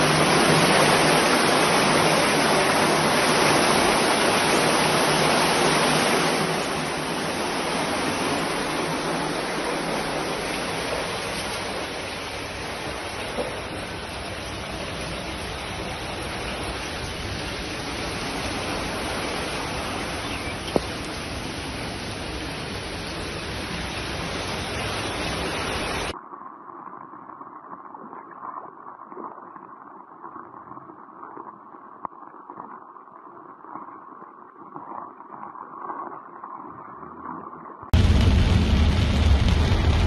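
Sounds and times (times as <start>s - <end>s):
heavy rain on flooded street: 0.0s - 26.2s, 38.0s - 40.0s.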